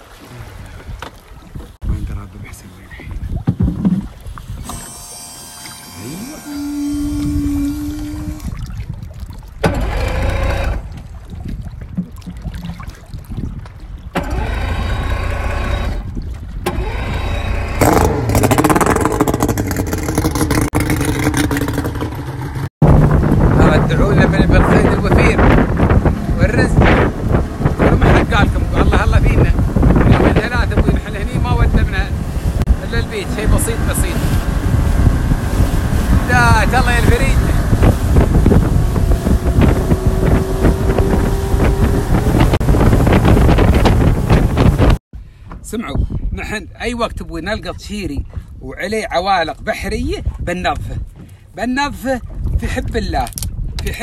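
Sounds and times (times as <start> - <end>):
wind buffeting microphone: 0.3 - 4.9, 6.0 - 54.0
water rushing and spray: 4.1 - 13.4, 22.8 - 45.0
outboard engine revving: 4.5 - 8.7, 9.6 - 11.2, 14.1 - 45.0.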